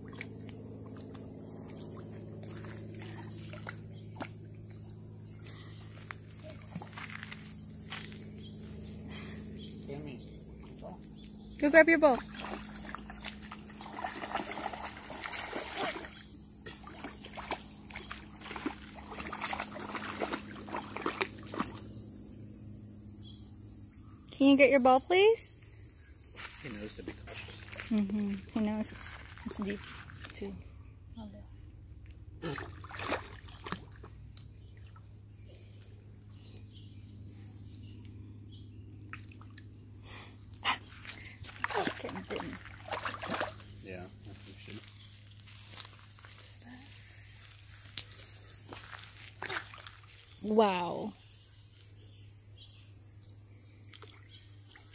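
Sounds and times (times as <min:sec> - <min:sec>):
feet splashing through shallow water: 0:00.0 - 0:08.3, 0:12.2 - 0:21.9, 0:26.5 - 0:30.4, 0:32.4 - 0:35.1, 0:40.9 - 0:50.4.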